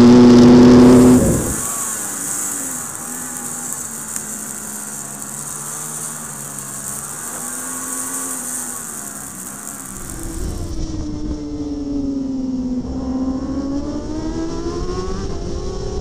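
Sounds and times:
wind rushing past: 0.0 - 3.8
motorcycle engine revving: 0.0 - 16.0.

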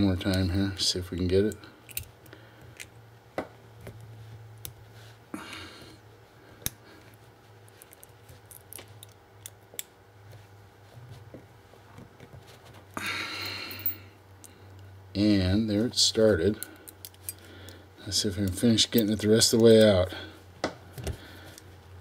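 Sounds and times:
small steel parts clicking: 1.5 - 2.1, 16.6 - 17.4.

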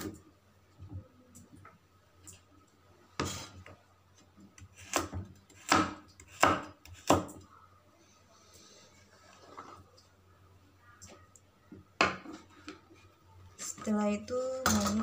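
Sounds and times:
knife chopping on wooden board: 4.8 - 7.3.

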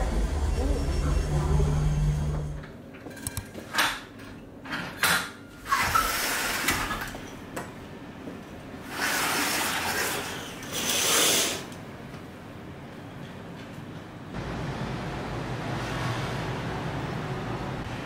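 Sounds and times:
curtains sliding along rail: 5.6 - 7.1.

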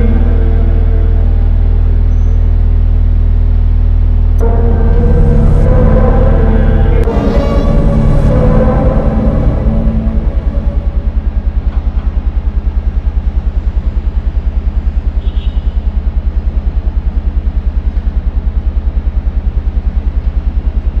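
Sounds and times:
low rumbling electronic drone: 0.0 - 21.0
faint high chirp: 2.1 - 2.6.

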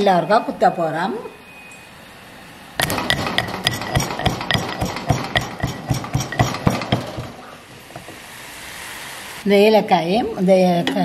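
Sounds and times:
metal pestle pounding in stone mortar: 2.8 - 7.4.

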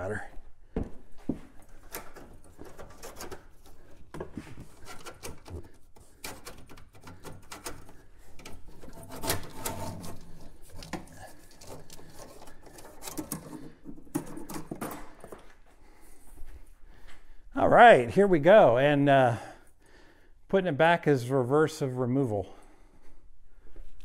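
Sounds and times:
metal line clicks and scrapes: 1.8 - 15.4.

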